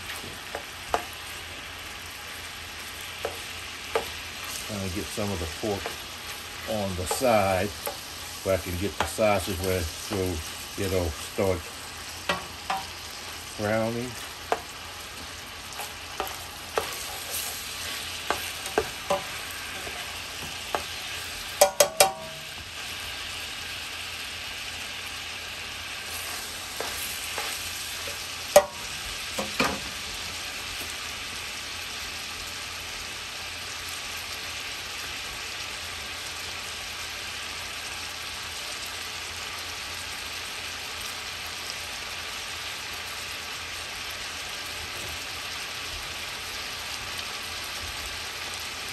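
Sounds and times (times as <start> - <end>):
meat sizzling in hot oil: 0.0 - 48.9
utensil scraping a pot: 15.7 - 22.4.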